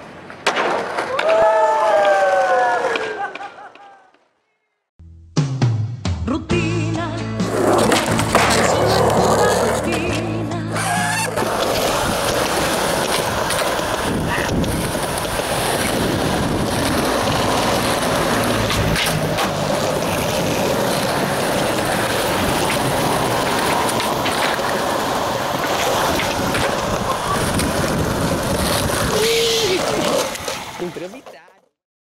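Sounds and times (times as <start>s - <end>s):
skateboard wheels on concrete: 0.0s - 4.2s, 7.4s - 31.8s
skateboard sliding on wooden bench: 7.5s - 31.4s
skateboard knocking: 11.2s - 31.6s
wind on microphone: 13.3s - 17.8s, 26.0s - 30.5s.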